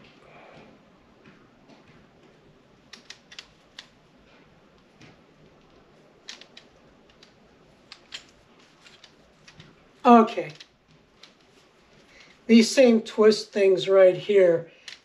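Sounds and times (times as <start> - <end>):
tripod clicks and knocks: 4.8 - 9.8.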